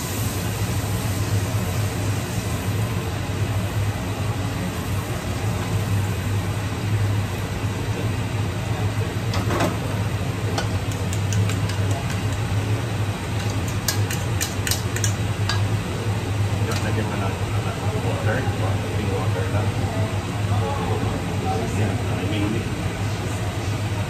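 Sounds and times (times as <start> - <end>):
extractor fan hum: 0.0 - 24.0
cookware clicks: 10.6 - 12.4.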